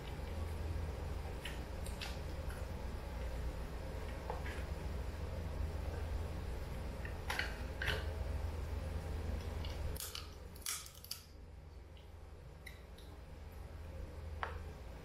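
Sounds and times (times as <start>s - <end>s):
low steady hum: 0.0s - 15.0s
lobster shell cracking: 9.6s - 11.3s.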